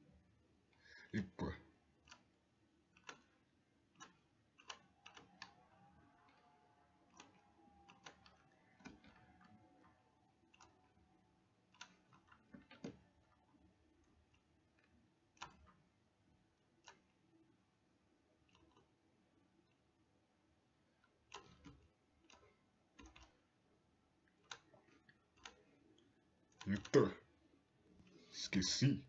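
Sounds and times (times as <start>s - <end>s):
computer mouse clicks: 2.0s - 15.8s, 16.7s - 17.4s, 18.4s - 19.0s, 21.0s - 23.5s, 24.2s - 27.1s.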